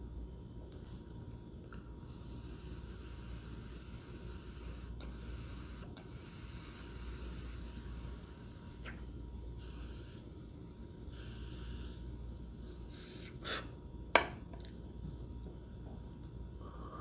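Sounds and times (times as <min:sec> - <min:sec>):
air drawn through vaporizer: 0:02.1 - 0:13.8.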